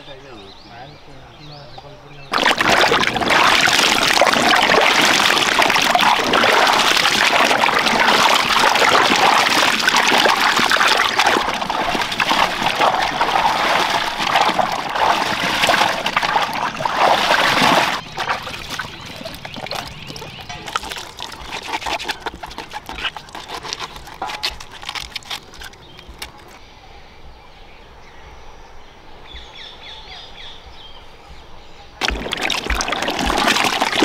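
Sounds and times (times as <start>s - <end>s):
hands scrubbing vegetables: 2.3s - 26.6s, 32.0s - 34.0s
water splashing: 2.3s - 26.6s, 32.0s - 34.0s.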